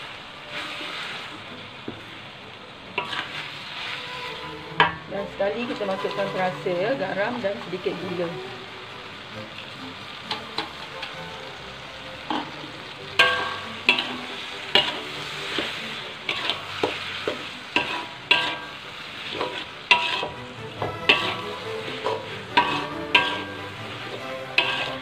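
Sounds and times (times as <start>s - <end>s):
food sizzling: 0.0s - 25.0s
metal spatula clanking in wok: 3.0s - 3.4s, 4.2s - 5.1s, 12.2s - 25.0s.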